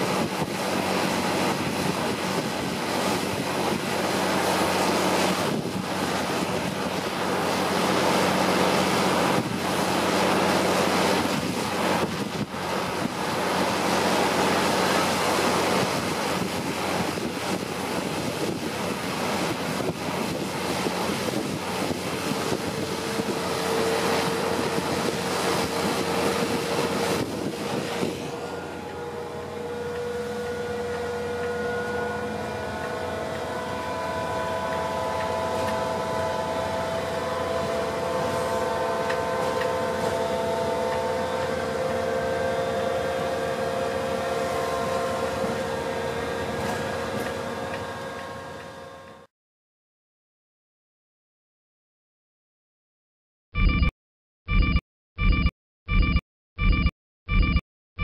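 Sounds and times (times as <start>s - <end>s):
wind buffeting the microphone: 0.0s - 7.4s, 9.0s - 28.4s
locomotive humming: 0.0s - 49.3s
drive whines rising in pitch: 22.5s - 49.3s.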